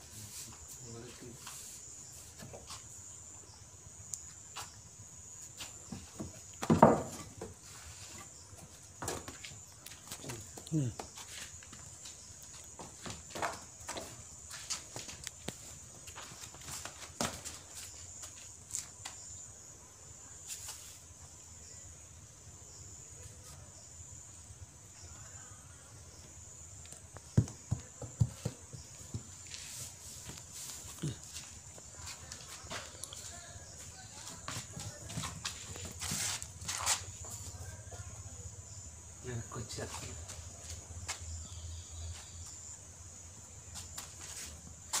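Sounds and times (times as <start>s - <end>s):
high-pitched insect trill: 0.0s - 45.0s
calf hooves on wooden planks: 5.5s - 18.9s, 26.8s - 38.1s
scuffing thump: 5.6s - 7.7s, 12.7s - 18.4s, 27.2s - 31.5s, 34.2s - 37.5s
hooves tapping on floor: 26.8s - 38.1s.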